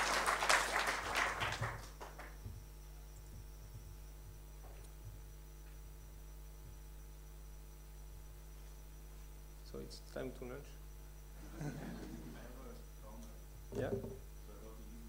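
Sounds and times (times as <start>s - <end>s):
audience applause: 0.0s - 2.4s
low electrical hum: 0.0s - 15.0s
faint knocks: 13.7s - 14.2s.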